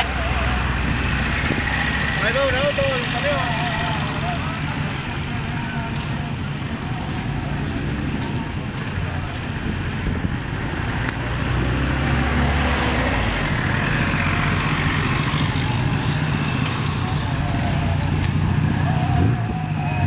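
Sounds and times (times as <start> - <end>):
roadside noise: 0.0 - 20.0
vehicle engine running: 0.0 - 20.0
engine revving: 6.6 - 20.0.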